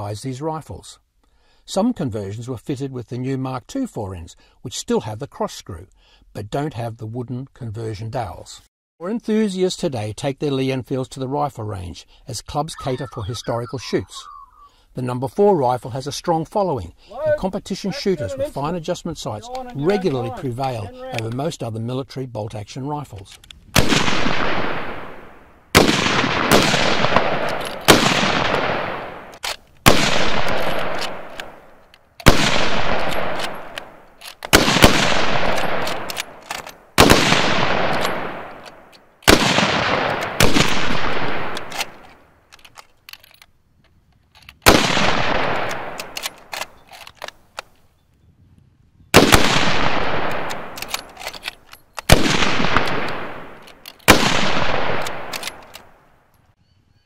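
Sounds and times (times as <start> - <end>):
rifle shots: 23.8 - 42.1, 44.6 - 46.8, 49.2 - 51.4, 52.0 - 56.1.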